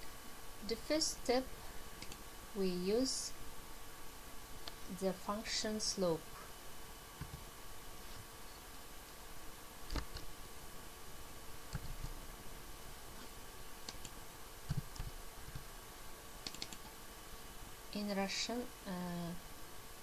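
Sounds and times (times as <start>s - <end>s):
faint steady hum: 0.0s - 20.0s
computer keyboard keystrokes: 2.0s - 2.2s, 11.7s - 12.1s, 13.9s - 15.6s, 16.4s - 16.9s.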